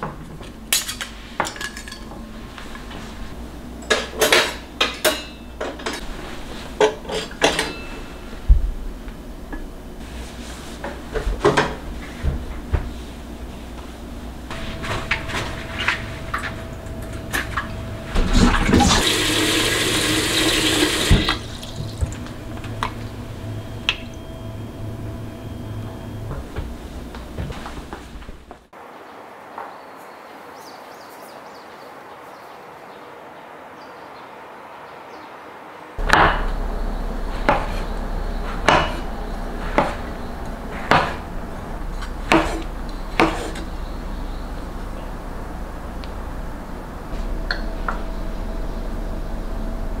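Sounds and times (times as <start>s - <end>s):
low background hum: 0.0s - 28.7s, 36.0s - 50.0s
water running into a bowl: 18.3s - 22.2s.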